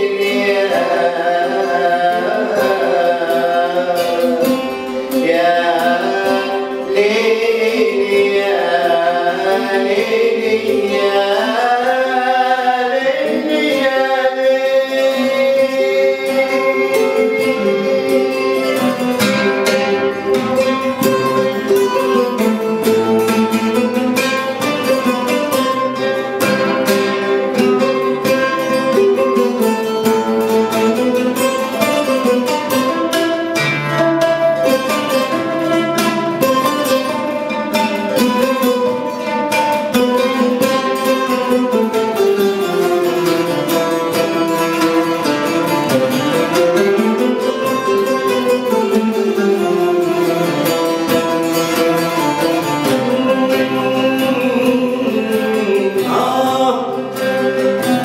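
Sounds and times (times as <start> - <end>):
man singing: 0.0 - 22.5, 52.6 - 58.0
plucked string trio: 0.0 - 58.0.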